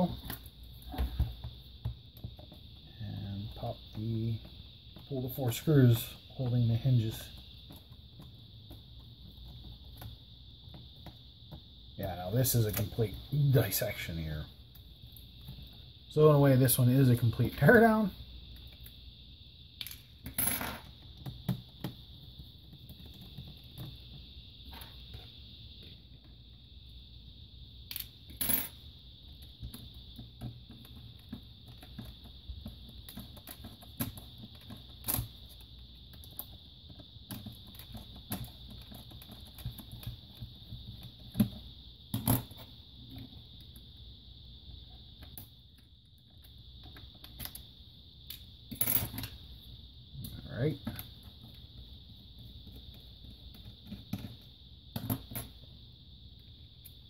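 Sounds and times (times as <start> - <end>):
steady high-pitched hiss: 0.0 - 57.0
laptop parts clicking and knocking: 29.4 - 42.7, 52.6 - 55.6.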